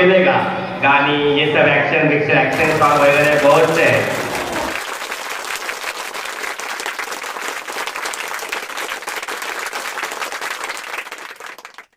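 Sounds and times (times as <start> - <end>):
crowd applauding: 2.5 - 11.9.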